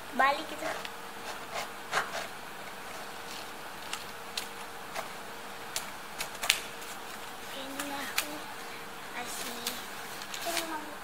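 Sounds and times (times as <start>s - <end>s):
faint steady hum: 0.0s - 11.0s
scissors snipping paper: 3.3s - 8.4s.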